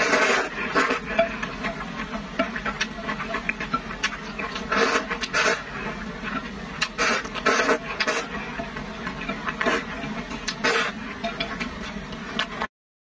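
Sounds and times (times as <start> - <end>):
person slurping noodles: 0.0 - 1.1, 4.4 - 6.0, 6.8 - 8.4, 9.6 - 11.1.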